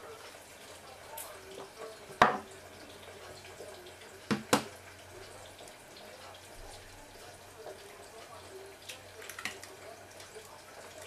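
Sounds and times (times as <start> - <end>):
kitchen items knocking on table: 2.2 - 2.5, 4.3 - 4.7.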